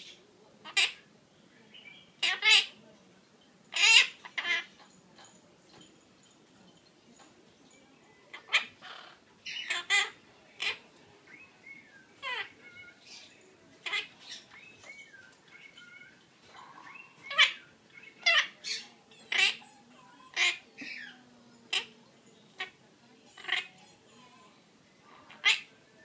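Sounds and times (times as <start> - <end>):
parrot squawking and chirping: 0.6 - 1.1, 2.0 - 2.8, 3.7 - 4.9, 8.3 - 24.6, 25.2 - 25.7.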